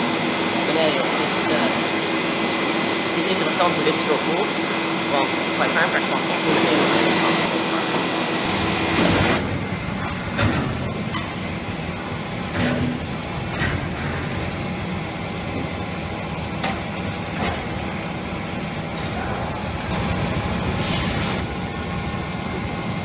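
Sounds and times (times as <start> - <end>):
knocks and clanks: 8.9 - 11.4, 12.5 - 14.5, 16.6 - 17.8.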